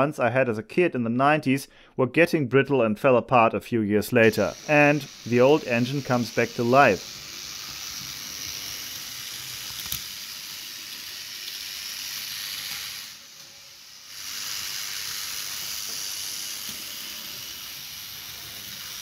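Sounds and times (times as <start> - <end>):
model train motor whirring: 4.2 - 19.0.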